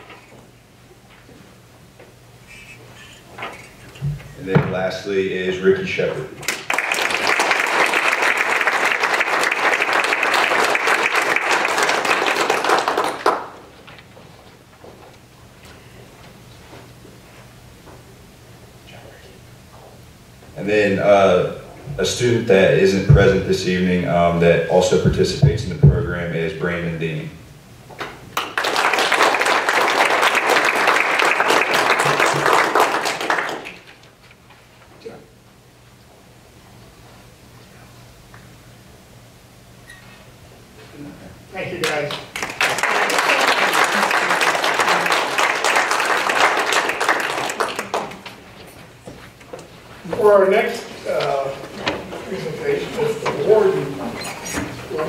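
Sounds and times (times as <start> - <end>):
people applauding: 6.4 - 13.8, 28.3 - 34.1, 41.7 - 48.6.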